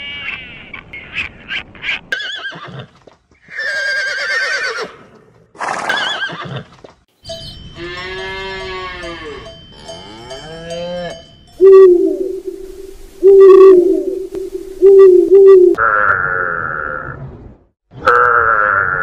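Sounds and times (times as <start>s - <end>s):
horses whinnying: 3.5s - 5.0s, 5.6s - 6.7s
short clicking calls: 14.2s - 15.8s.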